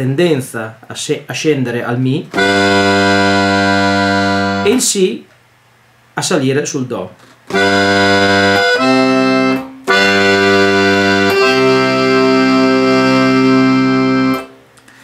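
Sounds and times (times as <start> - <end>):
accordion playing chords: 2.3 - 5.0, 7.5 - 14.6.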